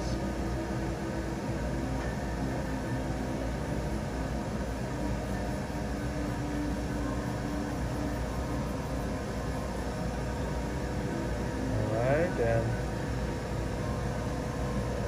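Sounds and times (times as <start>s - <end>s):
faint steady tones: 0.0s - 15.0s
machinery hum: 0.0s - 15.0s.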